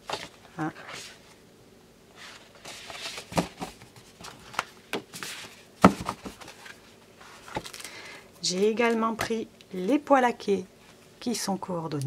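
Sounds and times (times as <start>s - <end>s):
paper rustling and sliding: 2.2s - 7.8s.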